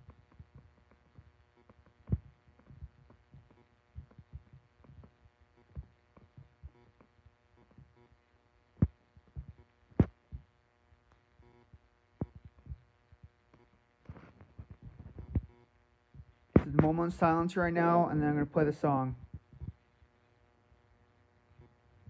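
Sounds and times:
soft thumps and clicks: 0:00.0 - 0:08.0, 0:08.8 - 0:10.5, 0:11.7 - 0:17.1, 0:19.2 - 0:19.8
faint steady hum: 0:00.0 - 0:22.0.

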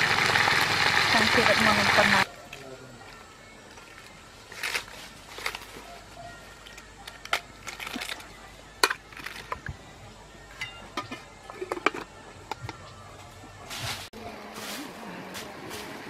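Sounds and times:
cabbage leaves rustling: 0:03.7 - 0:06.3, 0:13.6 - 0:16.0.

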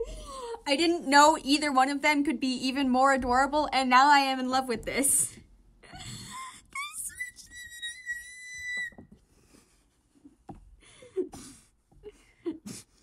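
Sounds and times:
person squealing: 0:06.0 - 0:09.0
squeaky vocal noises: 0:06.0 - 0:09.0.

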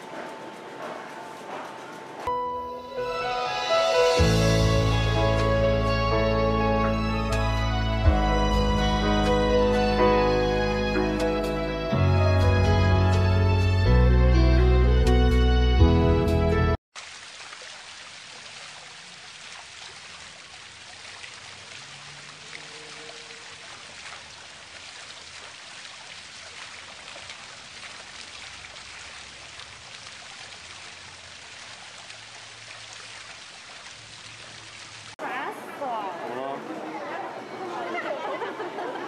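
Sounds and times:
running and splashing water: 0:16.9 - 0:38.7.

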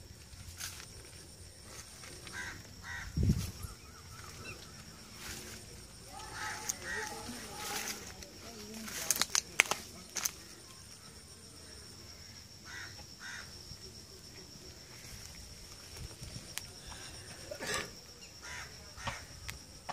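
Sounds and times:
rustling on dry leaves: 0:00.0 - 0:10.8
high insect trill: 0:00.0 - 0:19.9.

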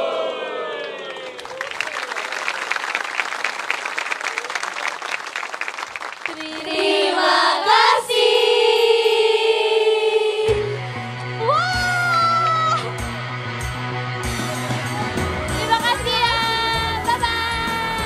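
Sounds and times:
audience applauding: 0:00.6 - 0:07.5.

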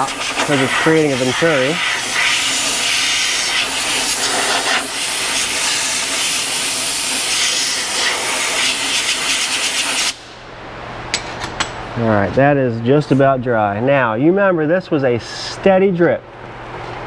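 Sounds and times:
compressed air hissing: 0:00.0 - 0:10.3.

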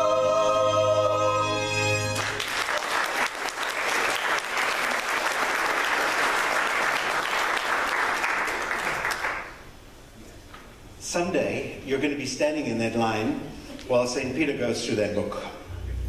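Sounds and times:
crowd applauding: 0:02.1 - 0:09.7.

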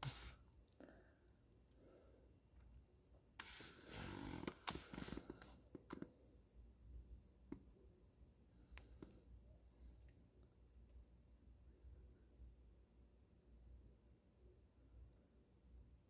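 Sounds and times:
close rustling and handling: 0:03.4 - 0:06.0.

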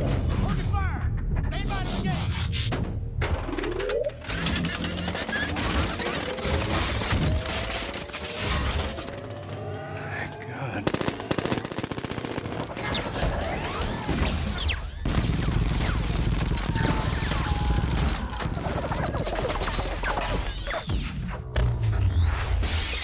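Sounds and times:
machine-gun fire: 0:10.8 - 0:20.4.

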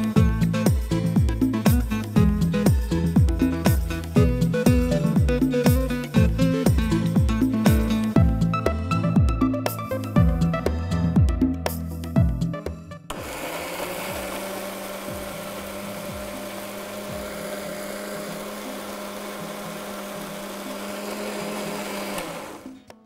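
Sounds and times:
mixer grinder running: 0:13.1 - 0:23.0.

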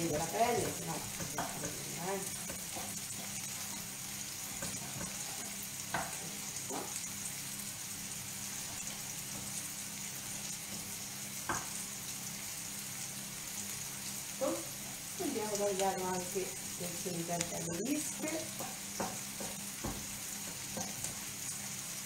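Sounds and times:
vegetables sizzling in oil: 0:00.0 - 0:22.0
knife knocking on cutting board: 0:18.6 - 0:20.1.

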